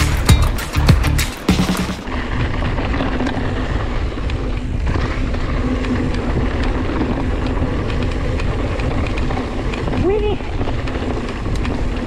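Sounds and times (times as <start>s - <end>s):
wind rumbling on microphone: 2.0s - 12.0s
light rattles and clicks: 4.2s - 12.0s.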